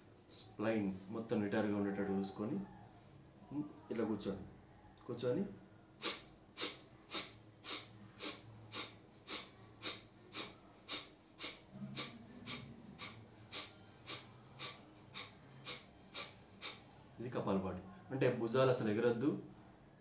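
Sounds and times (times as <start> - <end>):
forceful nasal exhalations: 6.0 - 16.8.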